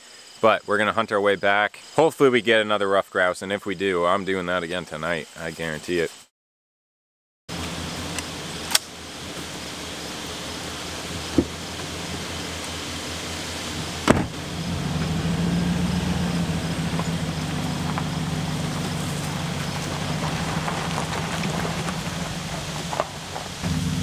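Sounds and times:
truck engine running: 7.5s - 24.0s
truck door slamming: 11.1s - 11.9s, 13.9s - 14.4s.

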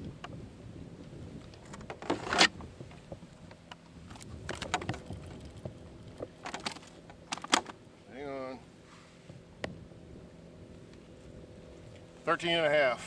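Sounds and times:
sharp clicks and knocks: 1.5s - 7.8s
rustling scrape: 8.8s - 9.3s.

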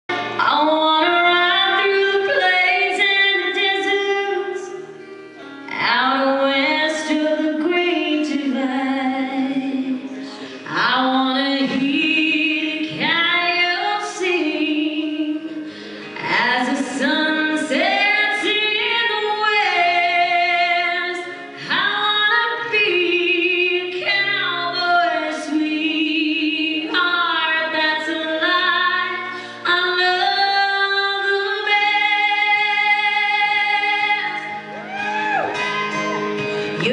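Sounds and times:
woman yodeling: 34.2s - 36.3s.

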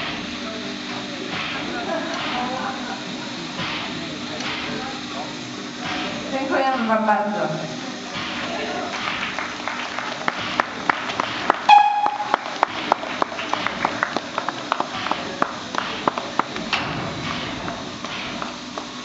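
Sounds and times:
hand claps: 8.9s - 16.8s, 17.7s - 19.0s
whistle toot: 11.7s - 12.4s.

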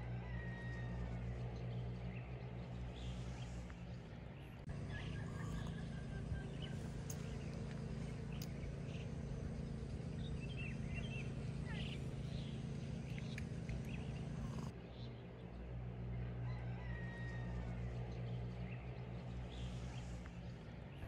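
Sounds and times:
steady low hum: 0.0s - 21.0s
bird chirps: 4.7s - 14.7s
faint clicks: 6.9s - 9.1s, 12.8s - 14.7s.

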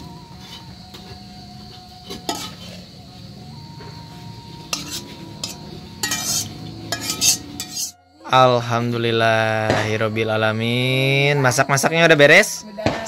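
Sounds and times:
metal spatula scraping a wok: 0.2s - 0.8s, 2.0s - 2.9s, 4.6s - 8.0s.

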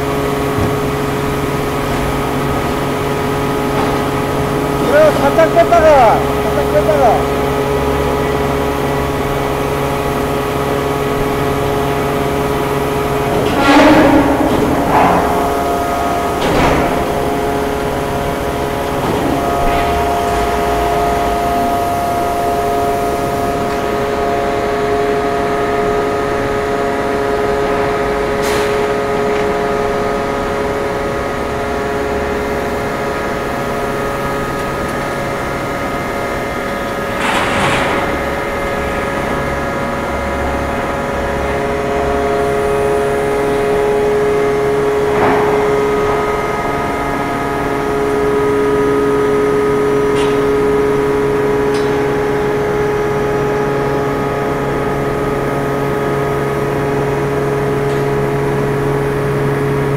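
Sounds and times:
hydraulic press whine: 0.0s - 59.9s.

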